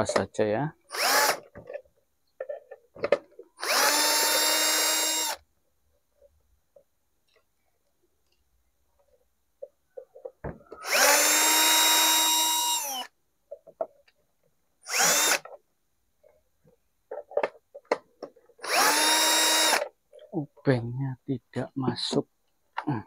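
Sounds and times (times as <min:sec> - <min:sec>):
electric screwdriver whirring: 0:00.9 - 0:01.5, 0:03.6 - 0:05.4, 0:10.8 - 0:13.1, 0:14.8 - 0:15.5, 0:18.6 - 0:19.9
handling clicks and knocks: 0:16.3 - 0:18.6.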